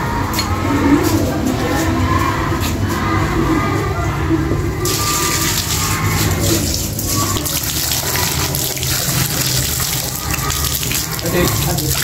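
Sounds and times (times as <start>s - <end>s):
water running from taps: 4.8s - 12.0s
water splashing on tiled floor: 4.8s - 12.0s.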